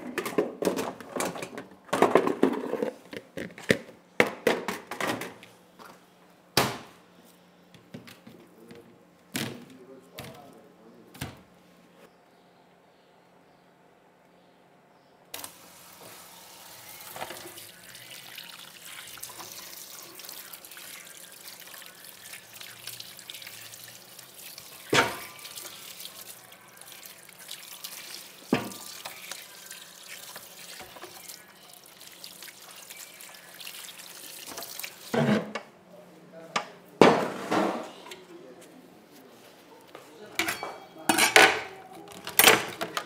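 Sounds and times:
tap running into a sink: 17.0 - 23.7, 24.6 - 26.1, 28.4 - 29.5, 34.3 - 35.6.

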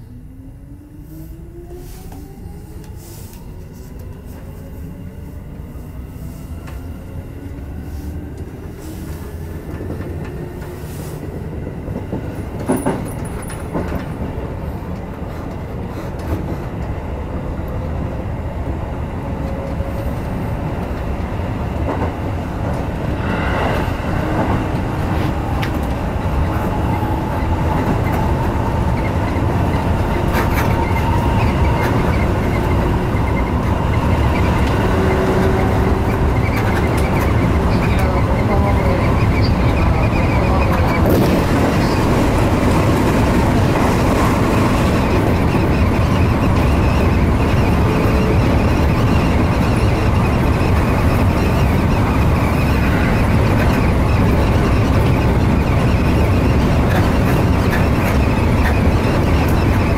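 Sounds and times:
train running noise: 0.0 - 59.9
train traction motor whine: 20.8 - 59.9
wheels clacking on rail joints: 23.7 - 59.9.

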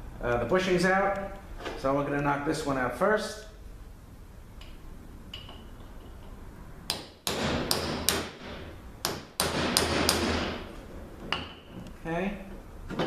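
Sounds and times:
hammer striking steel punch: 6.9 - 10.7.

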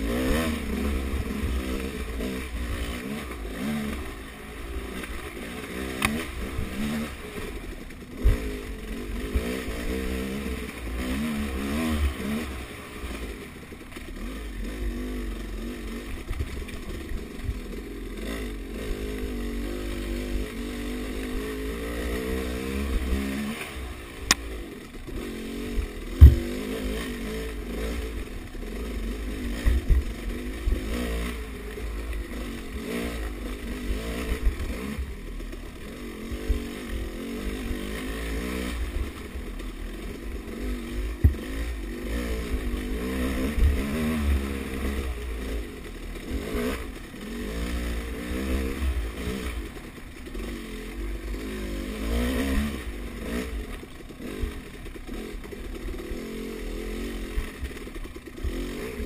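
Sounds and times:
dirt bike engine revving: 0.0 - 59.0
bike knocking over bumps: 26.2 - 26.6.

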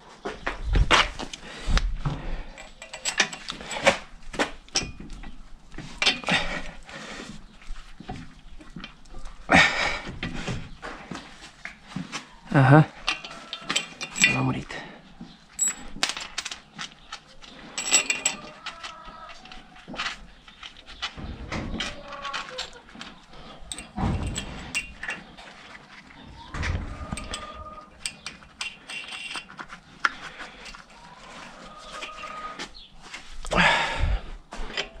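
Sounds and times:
metal tools clinking: 2.5 - 4.0, 4.7 - 5.4, 6.0 - 6.6, 13.0 - 14.9, 15.5 - 18.9, 21.5 - 32.5.

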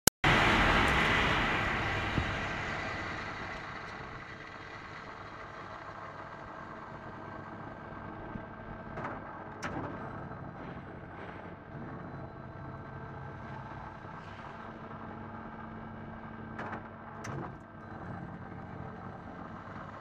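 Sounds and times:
low machine hum: 0.2 - 20.0
lathe chuck spinning down: 0.3 - 11.0.

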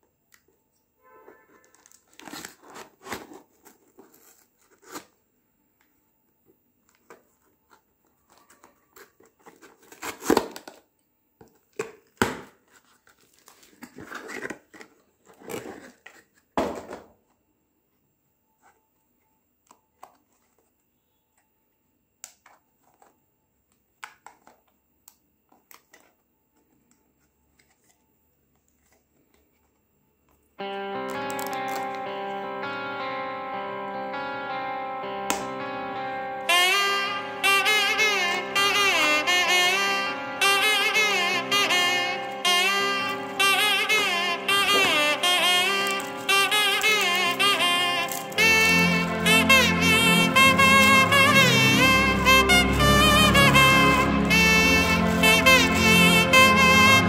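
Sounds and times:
plastic packet rustling: 1.3 - 5.1, 7.0 - 10.8, 11.6 - 16.5, 42.8 - 49.3
packing tape and cardboard tearing: 1.5 - 5.2, 7.0 - 10.9, 11.6 - 16.6, 31.1 - 32.0, 40.6 - 51.8.

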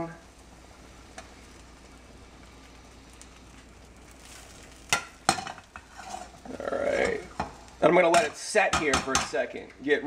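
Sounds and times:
eggs sizzling in a pan: 0.0 - 10.0
spatula scraping a pan: 4.2 - 7.6
spatula knocking on a pan: 7.4 - 9.4.

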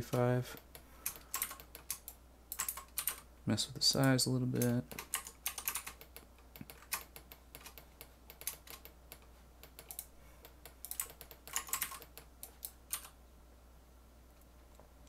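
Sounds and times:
low fan hum: 0.0 - 15.0
computer keyboard clicking: 0.6 - 3.2, 4.0 - 13.2.

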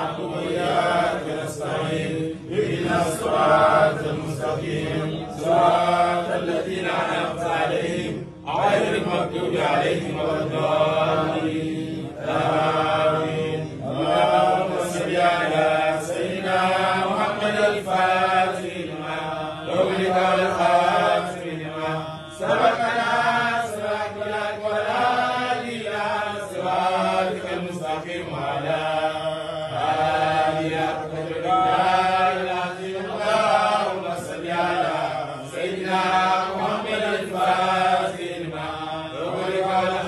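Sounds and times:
men chanting together: 0.0 - 40.0.

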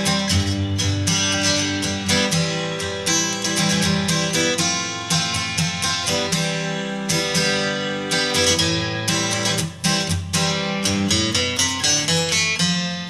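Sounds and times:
acoustic guitar music: 0.0 - 13.0.

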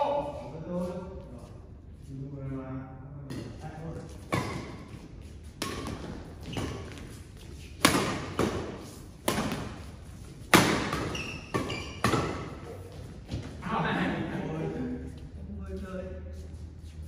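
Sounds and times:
rackets hitting shuttlecock: 4.2 - 13.6.

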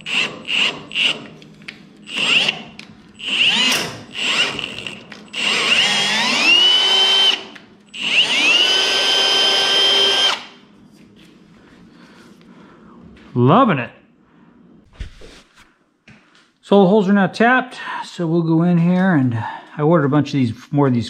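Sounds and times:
cordless drill motor whine: 0.0 - 1.3, 2.0 - 10.6.

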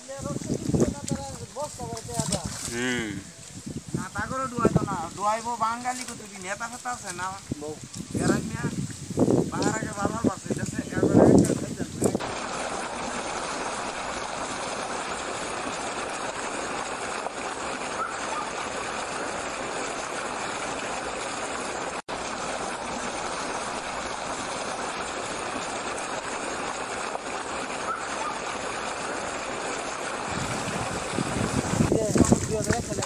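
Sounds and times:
rushing water: 0.0 - 33.0.

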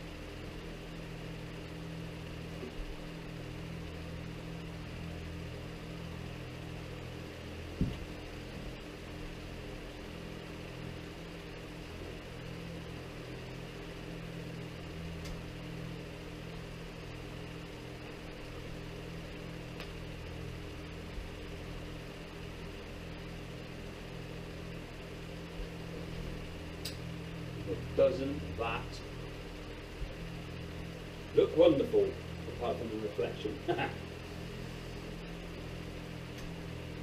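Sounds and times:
mechanical hum: 0.0 - 37.0.

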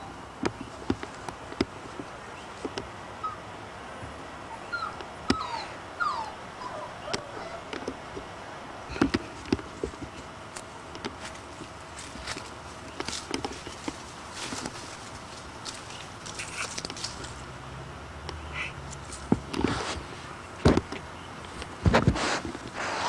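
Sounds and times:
puppies whimpering: 3.2 - 3.4, 4.5 - 7.8
knocks and clicks of movement: 20.6 - 22.7.

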